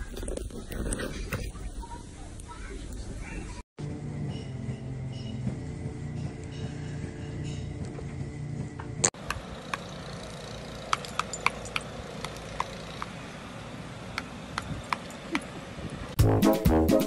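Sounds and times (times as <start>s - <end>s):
light metallic clicks and clinks: 10.7s - 13.2s, 14.6s - 15.5s
brass music: 16.2s - 17.0s.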